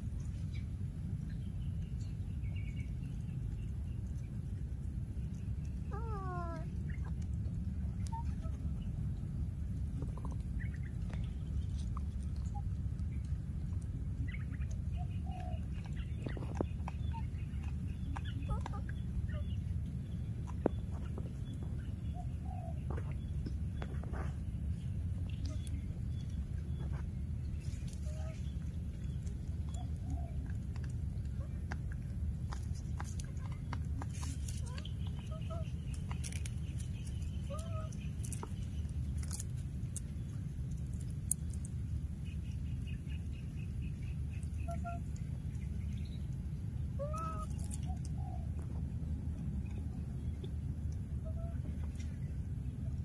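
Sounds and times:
steady low rumble: 0.0s - 53.0s
animal chirps: 5.7s - 9.0s, 46.8s - 48.5s.

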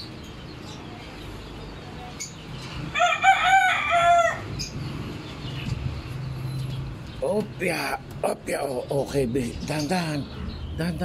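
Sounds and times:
rooster crowing: 2.9s - 4.5s.

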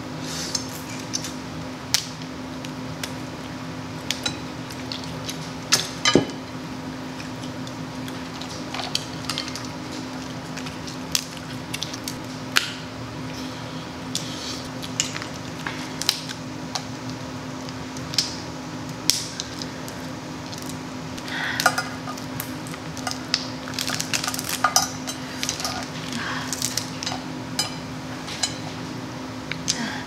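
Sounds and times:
steady low hum: 0.0s - 30.0s
wet chewing and smacking: 7.1s - 12.2s
crab shells cracking: 7.2s - 12.8s, 14.7s - 20.8s, 21.6s - 27.3s.

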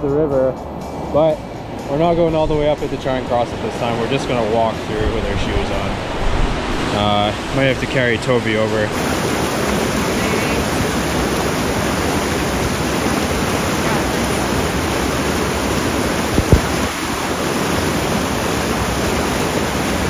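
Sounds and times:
river water rushing over rocks: 0.7s - 20.0s
low thumps: 16.2s - 17.0s.

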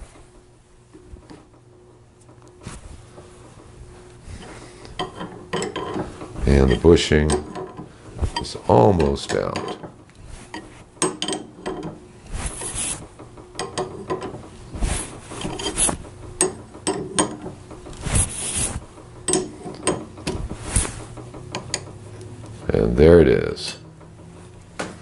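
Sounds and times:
metal tool clicks and scrapes: 4.9s - 9.9s.

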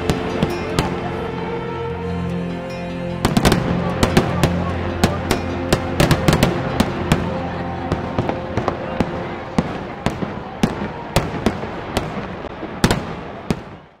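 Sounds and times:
fireworks bursting: 3.2s - 14.0s.

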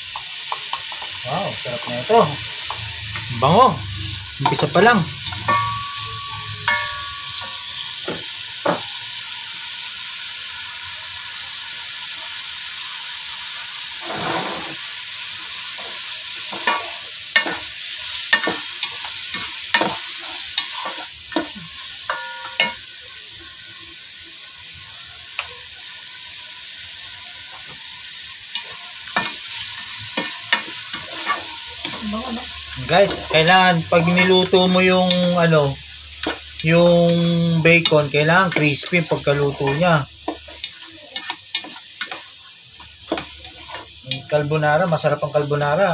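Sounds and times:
bacon sizzling in butter: 0.0s - 45.9s.

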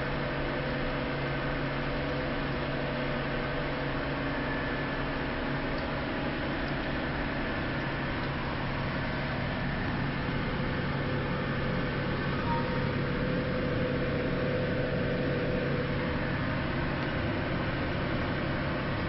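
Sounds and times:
faint steady whine: 0.0s - 19.0s
ship engine humming: 5.0s - 19.0s.

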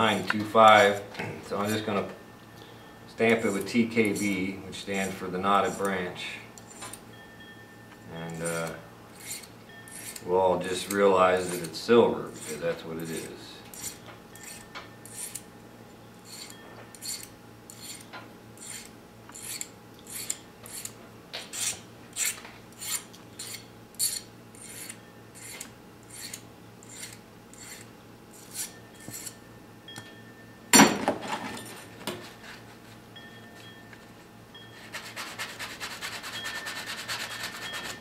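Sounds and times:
hand file rasping on wire: 3.3s - 6.0s, 8.3s - 15.4s, 16.2s - 29.4s, 34.8s - 38.0s.

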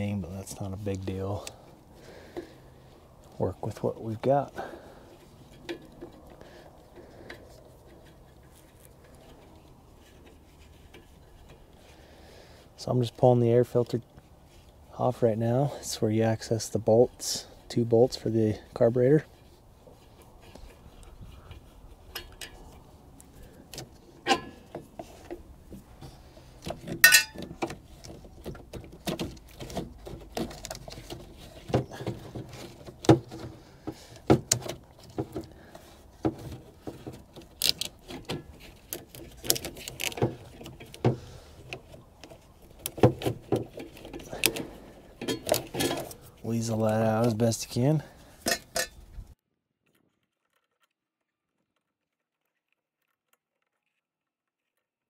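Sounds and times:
clicks and rattles of plastic housing: 26.6s - 47.4s.

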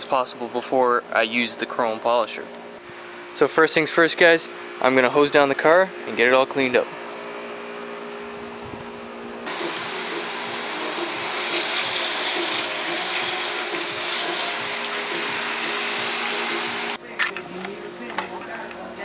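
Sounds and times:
steady low hum: 0.0s - 11.4s
hose spraying water on car: 9.5s - 17.0s.

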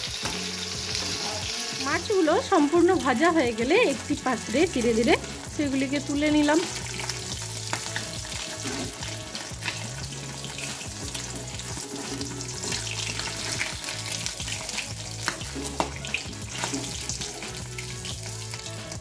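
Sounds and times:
fish sizzling in hot oil: 0.0s - 19.0s
spatula clinking and scraping pan: 6.6s - 18.6s.

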